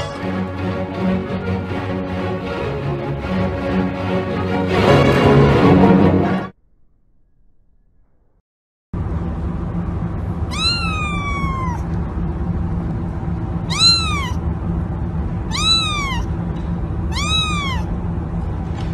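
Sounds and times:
low background hum: 0:09.0 - 0:18.9
kitten mewing: 0:10.5 - 0:12.0, 0:13.6 - 0:14.4, 0:15.5 - 0:16.3, 0:17.1 - 0:17.9.

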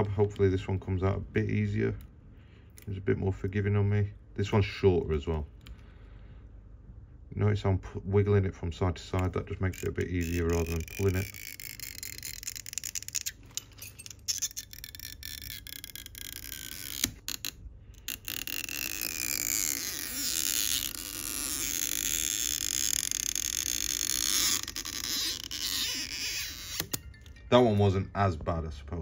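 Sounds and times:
adhesive strip rasping creak: 0:09.2 - 0:27.3
faint sliding squeaks: 0:18.0 - 0:27.9.

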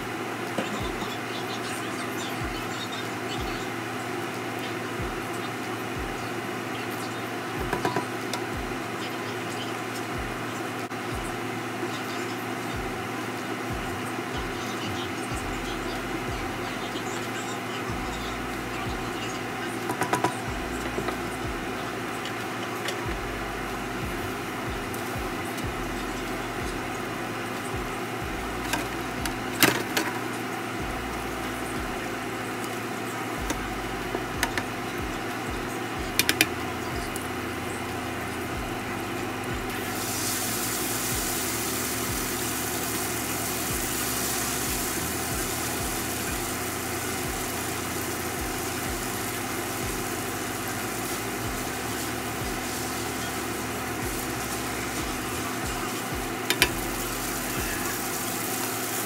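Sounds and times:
spaghetti sizzling in frying pan: 0:00.0 - 0:59.0
steady hum: 0:00.0 - 0:59.0.

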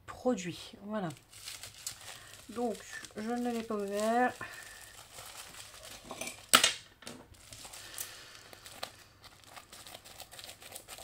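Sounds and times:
plastic mailer crinkling: 0:00.9 - 0:11.0
scissors cutting plastic: 0:07.4 - 0:11.0.

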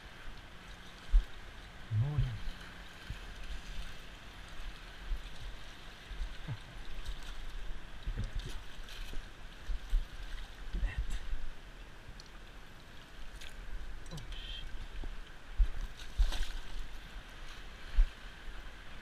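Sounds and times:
water lapping against float tube: 0:00.0 - 0:19.0
light splashes: 0:12.1 - 0:18.2.

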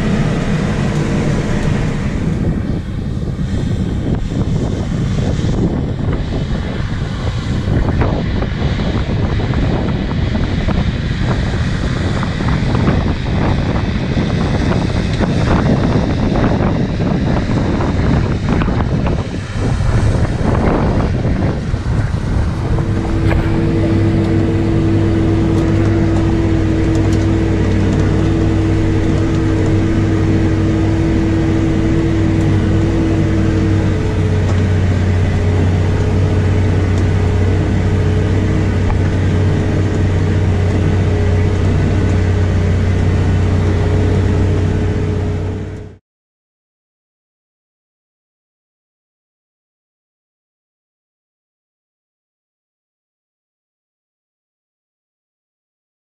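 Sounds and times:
tractor diesel engine under load: 0:00.0 - 0:46.0
wind on microphone: 0:00.0 - 0:46.0.

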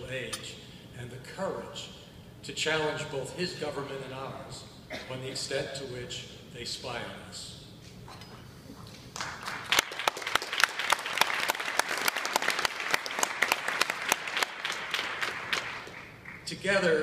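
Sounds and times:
audience applause: 0:09.2 - 0:16.4.

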